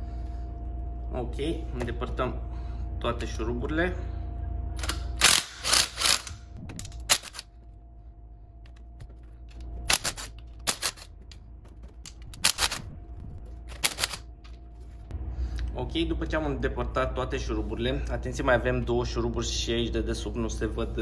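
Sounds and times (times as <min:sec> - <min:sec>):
cordless drill spinning bolts: 0:04.8 - 0:06.4.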